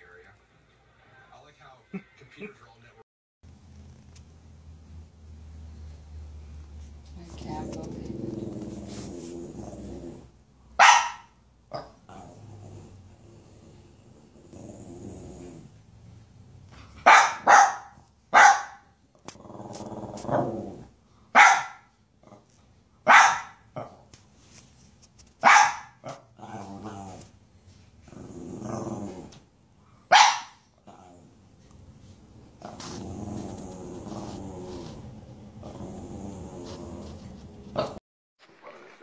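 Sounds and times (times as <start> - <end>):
dog growling: 7.3 - 10.4, 11.7 - 15.9, 19.2 - 21.0, 22.2 - 22.5, 26.0 - 27.4, 28.0 - 29.4, 30.8 - 31.8, 32.5 - 38.0
small dog barking sharply: 10.8 - 11.9, 17.0 - 18.9, 21.4 - 21.9, 23.0 - 23.6, 25.4 - 26.1, 30.1 - 30.6.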